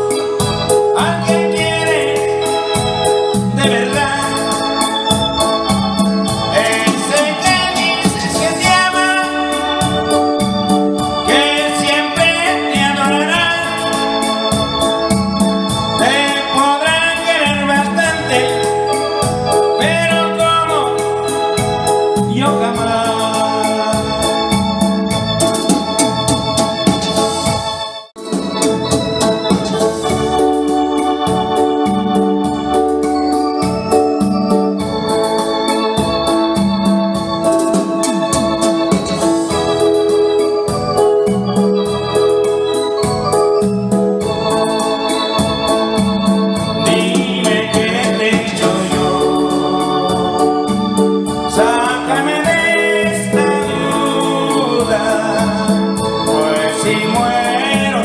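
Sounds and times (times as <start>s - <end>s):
steady beat: 0.0s - 16.2s, 24.5s - 27.6s, 28.2s - 35.0s, 36.0s - 42.1s
organ-like keyboard chords: 0.0s - 58.0s.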